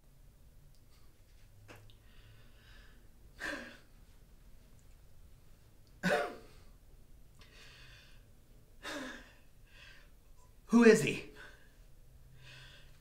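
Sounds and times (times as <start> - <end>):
man breathing heavily: 11.5 - 13.0.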